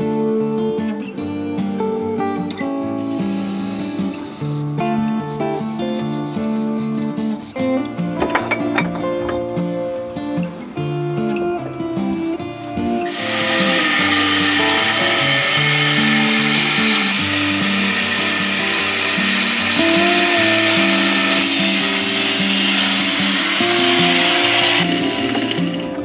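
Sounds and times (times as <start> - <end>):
angle grinder cutting steel: 13.0 - 26.0.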